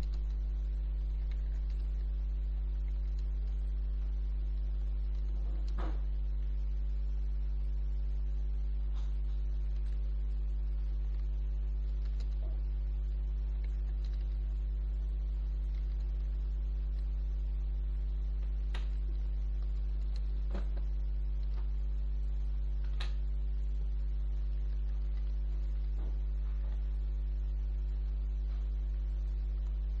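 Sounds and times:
computer mouse clicks: 0:00.0 - 0:06.0, 0:09.0 - 0:10.2, 0:10.8 - 0:12.6, 0:13.5 - 0:14.5, 0:18.4 - 0:21.8, 0:22.8 - 0:23.3
electrical mains hum: 0:00.0 - 0:30.0.

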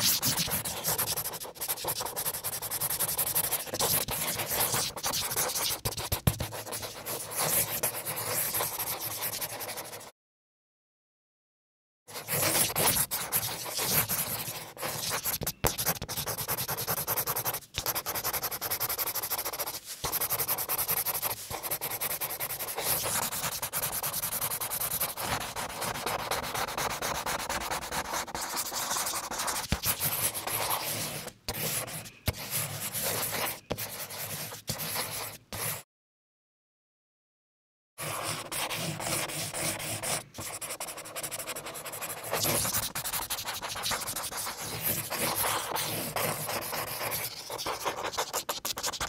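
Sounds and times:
pen scratching on paper: 0:00.0 - 0:10.1, 0:12.1 - 0:35.8, 0:38.0 - 0:49.0.

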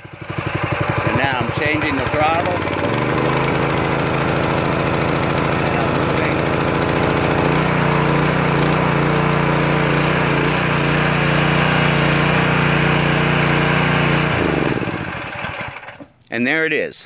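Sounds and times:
pressure washer engine running: 0:00.0 - 0:16.1.

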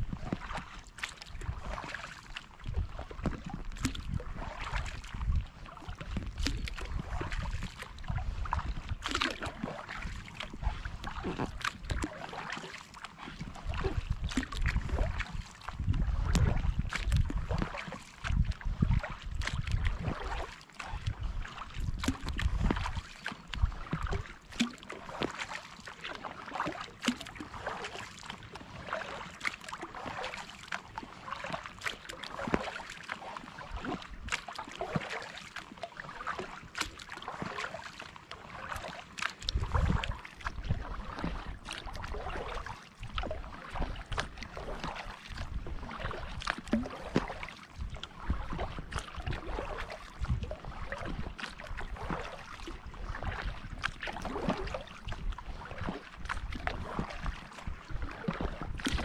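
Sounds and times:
wind rumble on microphone: 0:00.0 - 0:12.6, 0:13.2 - 0:25.4, 0:33.6 - 0:35.0, 0:38.5 - 0:59.0
kayak paddle strokes through water: 0:00.0 - 0:59.0
water dripping off paddle: 0:00.2 - 0:20.8, 0:21.5 - 0:50.0.

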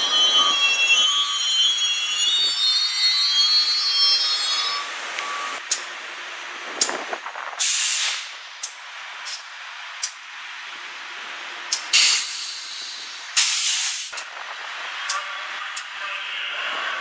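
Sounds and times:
train wheels squealing on rails: 0:00.0 - 0:05.7
bursts of released air: 0:06.9 - 0:08.4, 0:11.7 - 0:14.3.

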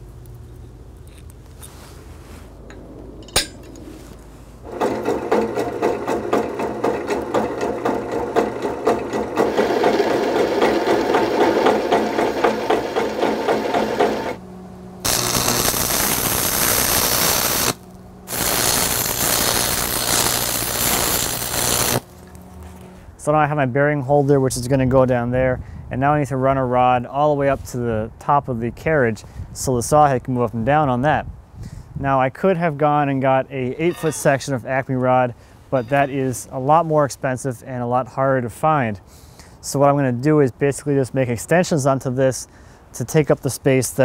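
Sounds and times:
drill press boring into steel: 0:04.7 - 0:14.4, 0:15.1 - 0:22.0
arc welding crackling hiss: 0:15.1 - 0:22.1.

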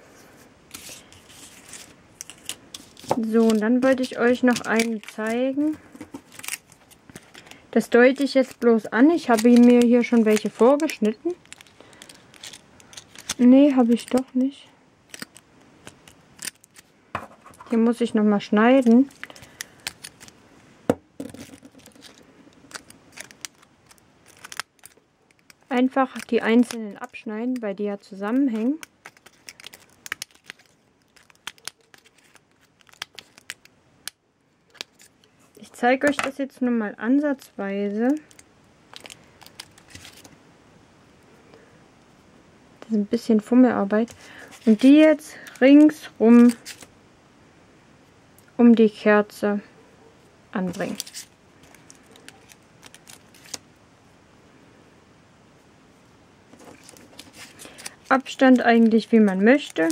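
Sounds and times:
scissors snipping plastic: 0:02.2 - 0:07.4, 0:08.1 - 0:14.4.

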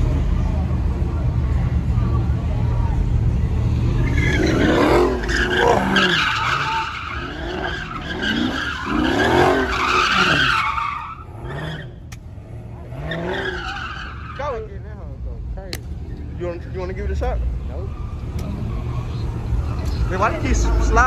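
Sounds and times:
car engine revving: 0:00.0 - 0:15.2
tyres screeching: 0:03.7 - 0:14.8.

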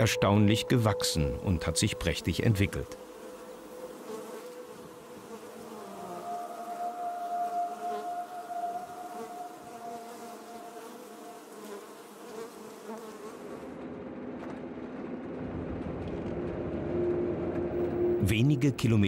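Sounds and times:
honeybees buzzing: 0:00.0 - 0:13.8
car driving on dirt track: 0:13.7 - 0:18.2.

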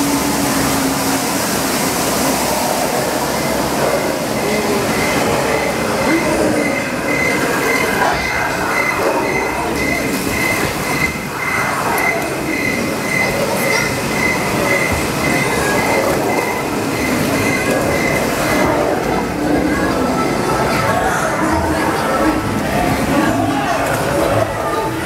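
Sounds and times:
ride train rumbling on track: 0:00.0 - 0:25.0
pulsing tone: 0:03.2 - 0:18.8.

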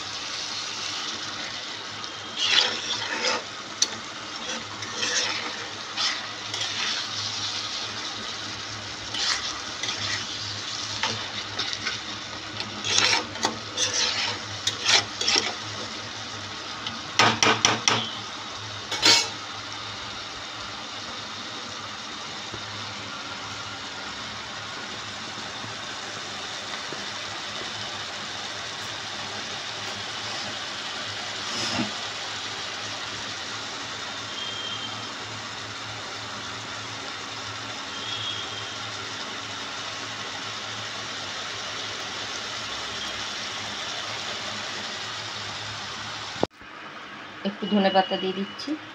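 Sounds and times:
curry sizzling: 0:00.0 - 0:46.5
spatula scraping and knocking wok: 0:00.2 - 0:18.2, 0:18.8 - 0:19.4, 0:31.4 - 0:32.0.

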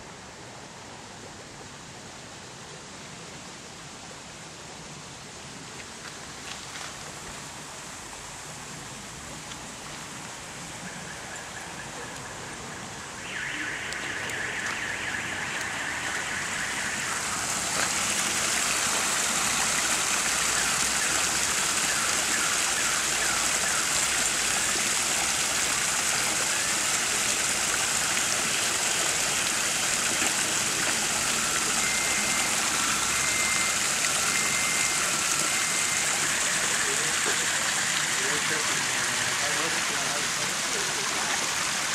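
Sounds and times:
waterfall splashing over rocks: 0:03.1 - 0:41.9.

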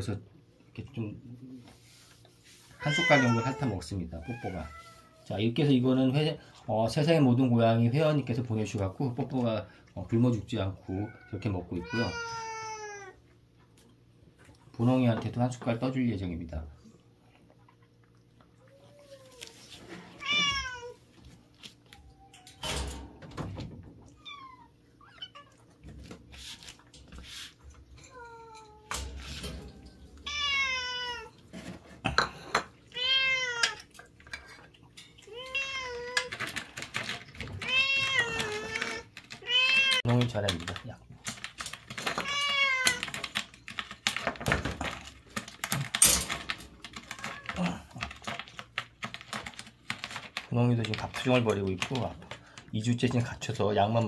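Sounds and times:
cat meowing: 0:02.8 - 0:05.3, 0:10.9 - 0:13.2, 0:20.2 - 0:21.0, 0:30.2 - 0:31.4, 0:32.9 - 0:33.8, 0:35.3 - 0:36.4, 0:37.6 - 0:40.1, 0:42.2 - 0:43.1
rustling handling noise: 0:25.6 - 0:28.1, 0:35.0 - 0:54.0.

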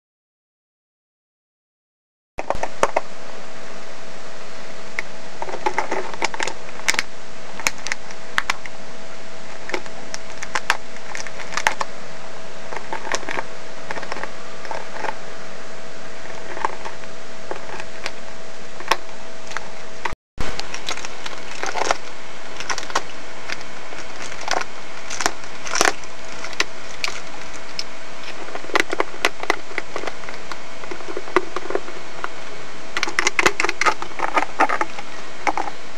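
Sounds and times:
faint hum: 0:02.4 - 0:35.9
dog chewing plastic bottle: 0:09.5 - 0:11.9, 0:12.7 - 0:15.2, 0:16.2 - 0:18.2, 0:20.4 - 0:32.4, 0:33.0 - 0:35.8.

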